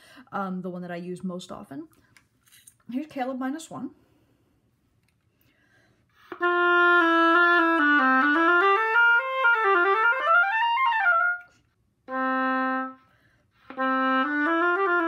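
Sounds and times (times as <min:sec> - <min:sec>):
oboe playing notes: 0:06.2 - 0:15.0.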